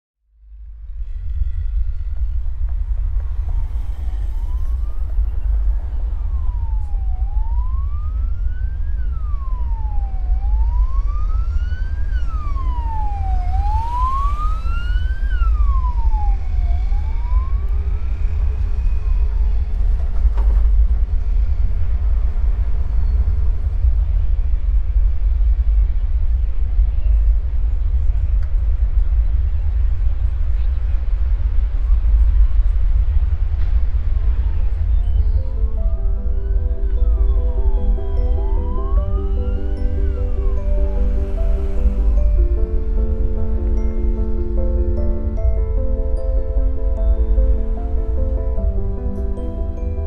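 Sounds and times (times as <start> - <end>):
low rumble of traffic: 0.2 - 50.0
siren wailing: 3.2 - 19.8, 35.4 - 44.3.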